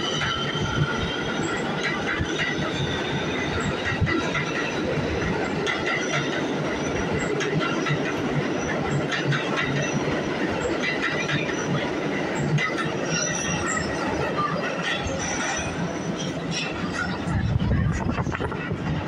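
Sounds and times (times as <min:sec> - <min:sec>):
steel wheels rumbling on rails: 0:00.0 - 0:19.0
high wheel squeal: 0:12.4 - 0:17.2.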